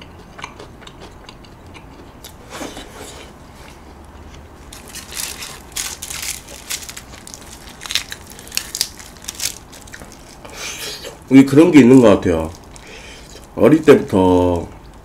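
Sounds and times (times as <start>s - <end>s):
aluminium foil crinkling: 4.7s - 11.1s, 12.3s - 14.1s.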